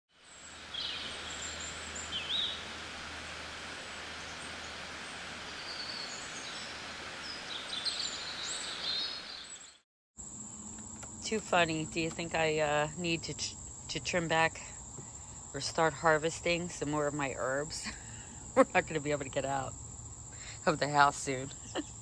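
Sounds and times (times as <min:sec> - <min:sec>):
small birds chirping: 0:00.2 - 0:02.8, 0:04.1 - 0:09.8, 0:14.8 - 0:22.0
steady hiss: 0:00.2 - 0:09.5.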